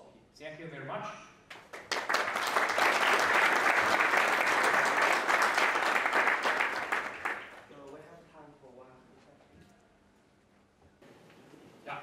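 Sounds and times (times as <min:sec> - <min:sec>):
audience applauding: 0:01.5 - 0:07.7.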